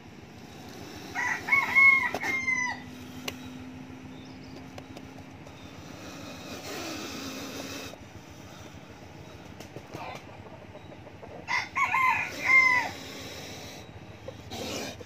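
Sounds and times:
rooster crowing: 1.1 - 3.0, 11.4 - 13.1.

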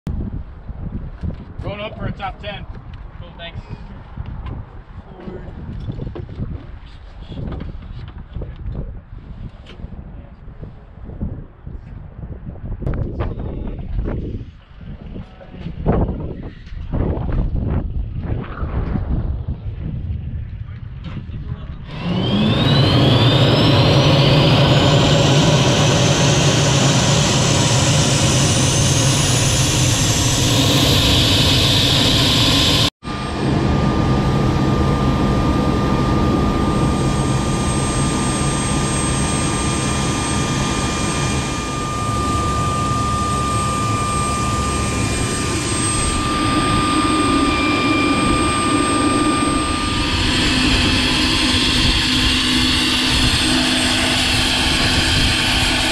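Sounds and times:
low hum: 11.0 - 55.9
helicopter turbine whine: 13.2 - 55.9.

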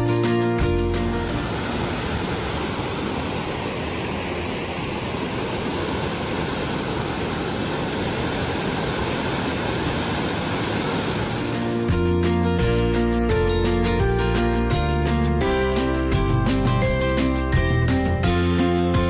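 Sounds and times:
waterfall rushing: 0.4 - 12.9.

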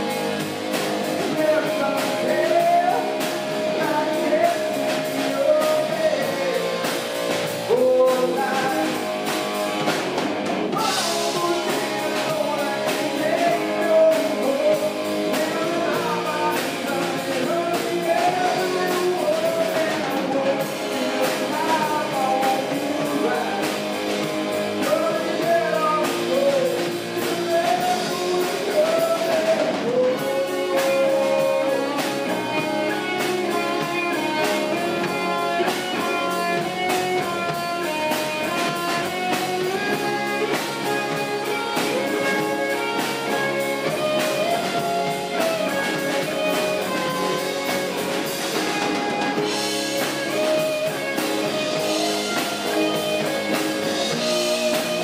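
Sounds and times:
rock band playing live: 0.0 - 55.0
sliding lead guitar melody: 0.0 - 55.0.

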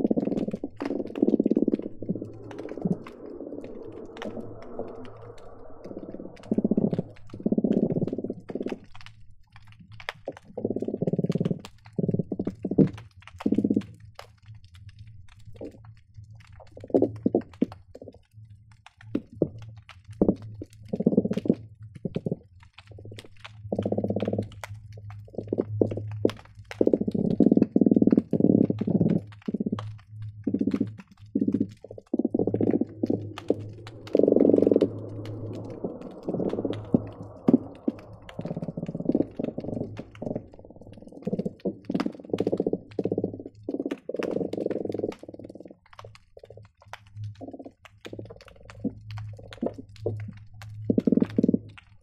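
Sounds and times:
steady low hum: 0.0 - 8.6, 31.6 - 43.5
fish calling underwater: 0.0 - 8.8, 31.6 - 45.6.

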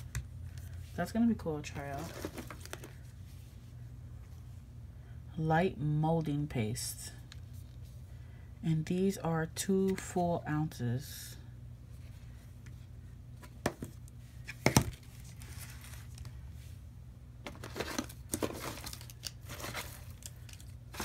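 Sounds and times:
low steady hum: 0.0 - 21.0
plastic bag crinkling: 17.6 - 21.0.

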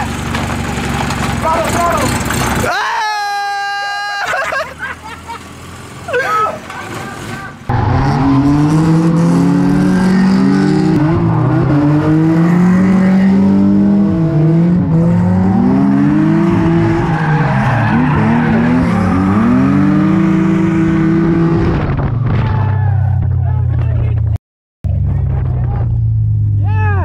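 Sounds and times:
car engines revving: 0.0 - 2.8, 4.3 - 27.0
tyres squealing on tarmac: 16.8 - 19.5.

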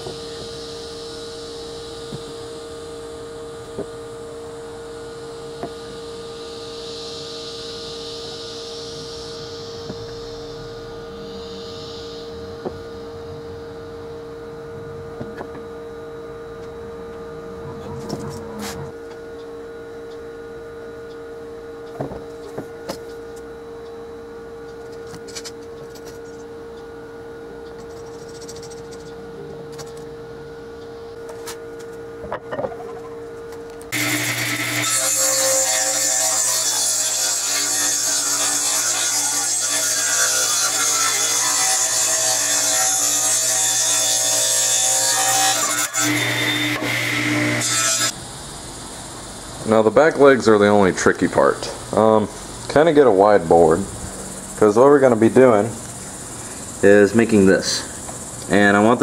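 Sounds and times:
table saw cutting a board: 0.0 - 13.0, 17.3 - 19.0, 33.9 - 48.2
faint steady hum: 0.0 - 59.0.

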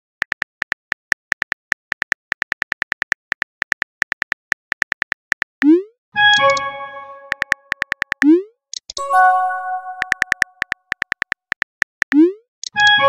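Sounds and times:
phone keyboard clicks: 0.2 - 5.6, 7.3 - 9.0, 10.0 - 13.0
chime: 9.0 - 10.4.

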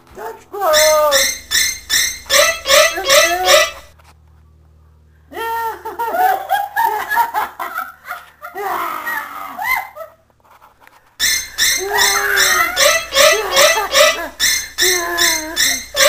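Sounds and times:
woman laughing: 5.7 - 10.2, 11.9 - 15.6.

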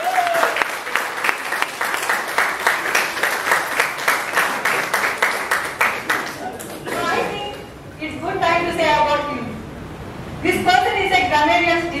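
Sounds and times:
audience clapping: 0.0 - 7.7.

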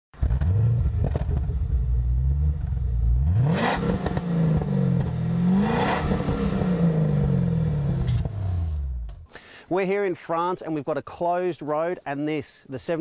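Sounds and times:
car engine revving hard: 0.2 - 9.0.

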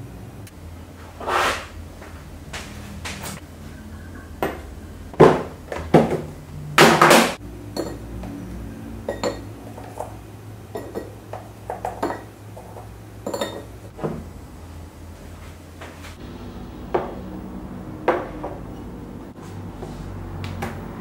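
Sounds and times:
dishes and cutlery clinking: 7.8 - 8.3, 9.0 - 10.2, 10.8 - 13.7.

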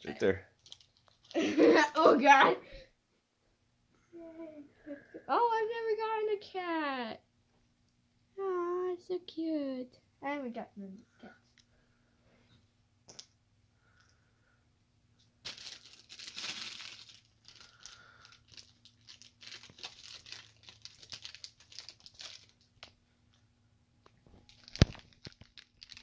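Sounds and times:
plastic wrappers tearing and crinkling: 0.5 - 2.1, 15.4 - 23.0, 24.4 - 26.0.

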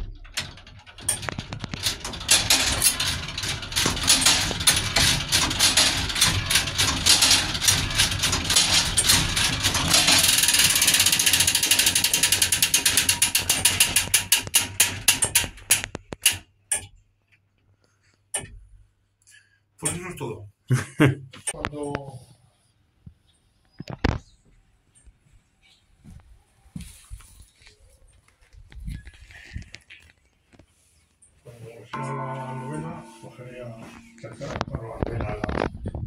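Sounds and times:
clock gears clattering: 0.0 - 16.9.

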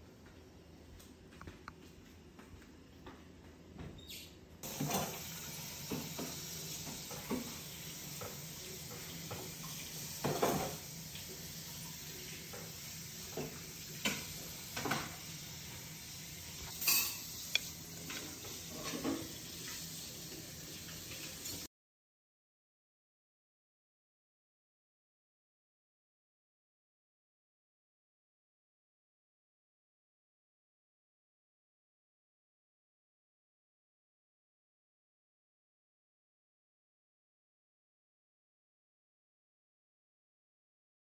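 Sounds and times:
fork clinking on a plate: 16.7 - 17.7.

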